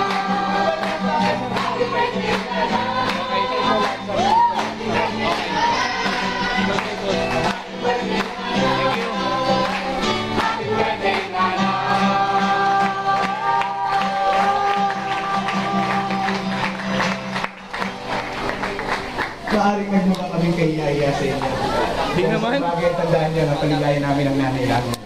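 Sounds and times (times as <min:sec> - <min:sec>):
group singing: 0:00.0 - 0:17.4
people clapping: 0:00.0 - 0:20.5
acoustic guitar strumming: 0:00.0 - 0:24.4
woman singing into a microphone: 0:07.8 - 0:16.5.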